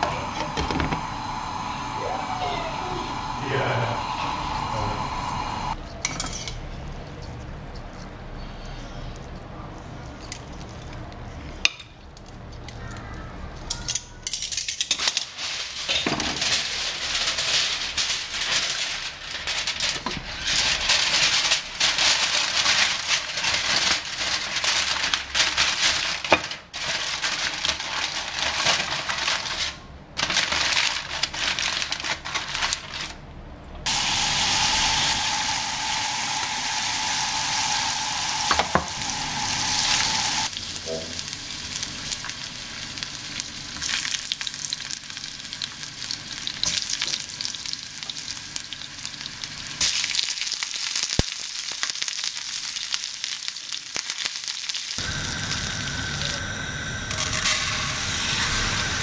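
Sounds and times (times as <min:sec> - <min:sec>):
aluminium foil crinkling: 0:10.1 - 0:33.2, 0:40.4 - 0:56.4
chicken frying in a pan: 0:33.9 - 0:59.0.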